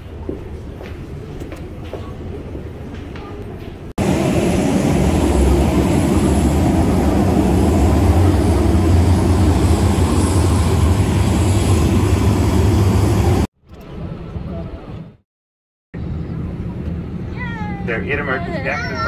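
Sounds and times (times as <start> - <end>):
jet engine rumble: 4.0 - 15.2.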